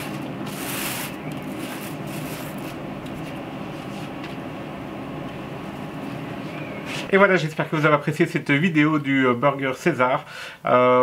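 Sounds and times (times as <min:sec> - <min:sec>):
machine hum: 0:00.0 - 0:08.7.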